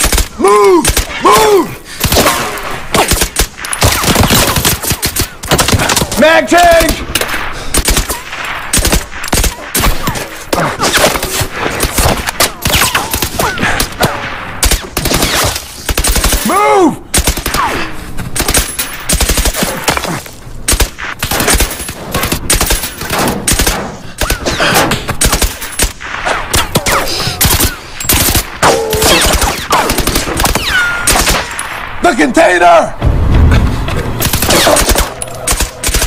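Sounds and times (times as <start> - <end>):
rifle and automatic gunfire: 2.0 - 6.2, 7.8 - 10.0, 18.4 - 19.8, 34.2 - 36.0.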